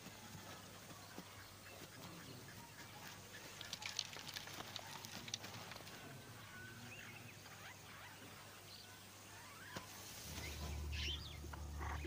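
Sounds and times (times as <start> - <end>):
faint crackling and rustling: 0.0 - 8.5
bird chirps: 6.5 - 12.0.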